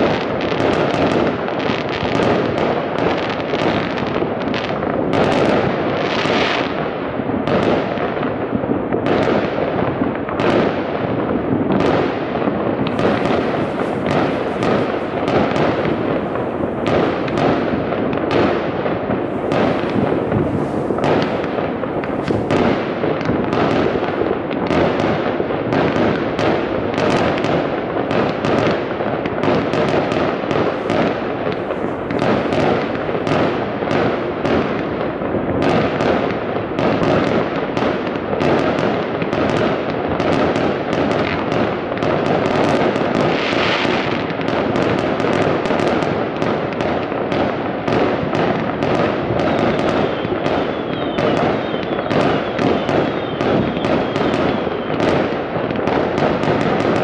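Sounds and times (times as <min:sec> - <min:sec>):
fireworks and firecrackers banging: 0:00.0 - 0:57.0
falling firework whistles: 0:12.9 - 0:18.4, 0:19.2 - 0:24.3, 0:49.4 - 0:55.2.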